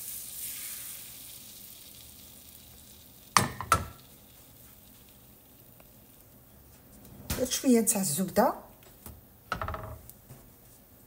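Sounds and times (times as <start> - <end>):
eggs sizzling in frying pan: 0.0 - 7.0.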